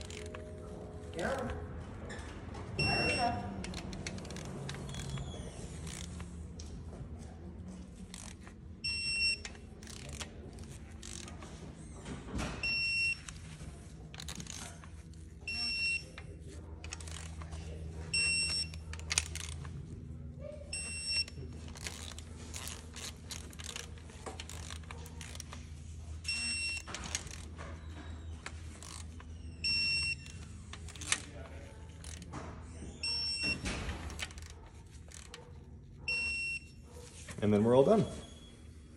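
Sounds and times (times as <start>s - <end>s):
torque wrench beeping: 2.8s - 6.3s, 8.0s - 12.0s, 12.6s - 13.5s, 15.4s - 16.3s, 18.1s - 19.6s, 20.7s - 25.4s, 26.2s - 31.3s, 32.0s - 35.4s, 36.0s - 36.8s
tool clicks: 2.8s - 6.8s, 7.9s - 11.6s, 14.1s - 19.7s, 20.8s - 32.4s, 33.0s - 36.7s.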